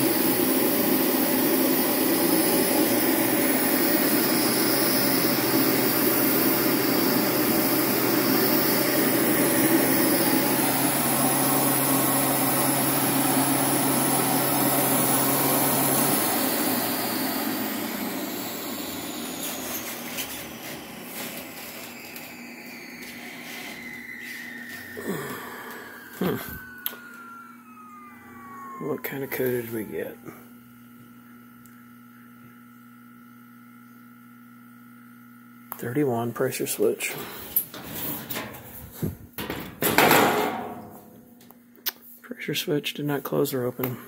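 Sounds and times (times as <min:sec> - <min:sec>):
furnace motor humming: 0:00.0 - 0:42.0.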